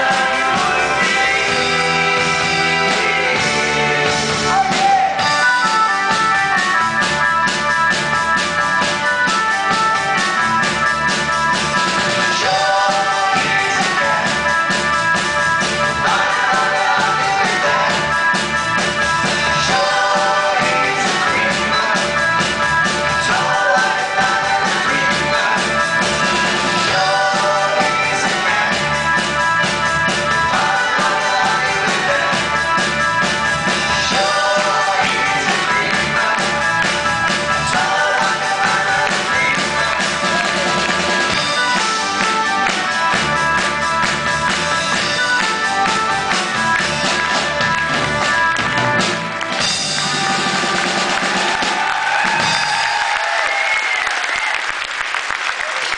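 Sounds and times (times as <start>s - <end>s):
man singing: 0.0s - 5.6s, 12.3s - 14.6s, 19.5s - 22.4s, 23.1s - 26.0s, 26.8s - 29.1s, 30.3s - 32.7s, 33.8s - 41.2s
rock band playing: 0.0s - 54.8s.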